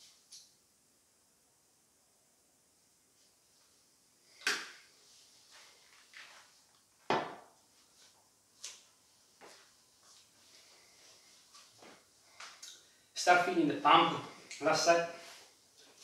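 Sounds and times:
plastic bottle knocks: 7.1 - 7.4
footsteps on tiled floor: 7.2 - 12.5.

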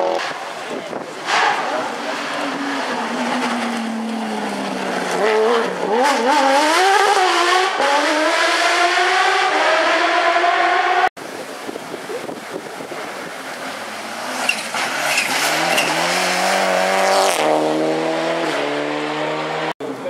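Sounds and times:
rally car engine revving: 0.0 - 11.1, 13.5 - 19.8.

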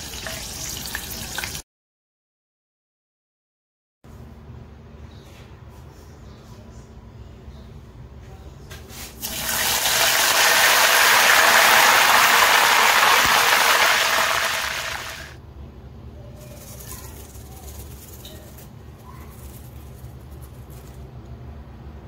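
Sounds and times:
leaves sizzling in hot oil: 9.2 - 15.3.

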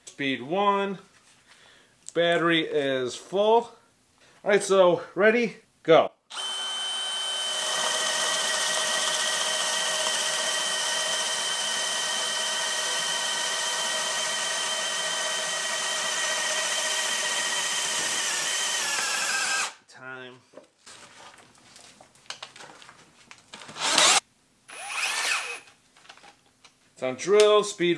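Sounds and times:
drill boring into wood: 6.3 - 19.8, 23.8 - 25.7.

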